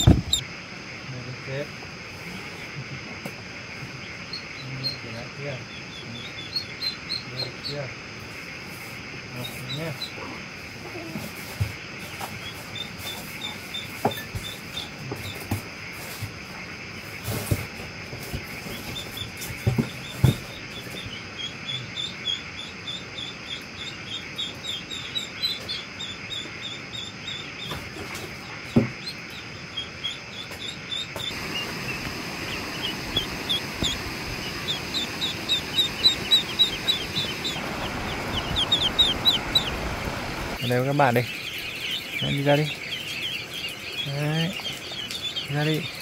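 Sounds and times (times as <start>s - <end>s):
ducklings peeping: 0.0s - 46.0s
steady hiss: 30.2s - 46.0s.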